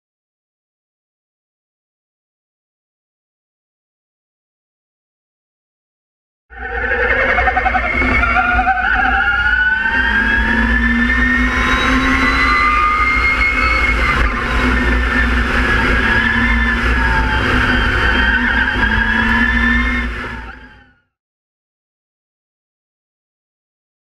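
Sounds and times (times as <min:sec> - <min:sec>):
electric motor whine: 0:09.8 - 0:20.8.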